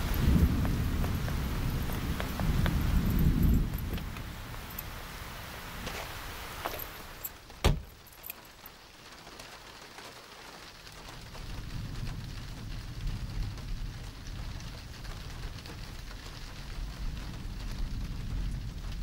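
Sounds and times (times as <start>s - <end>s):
heavy rain on car roof: 0.0s - 19.0s
car door slamming: 7.6s - 8.0s.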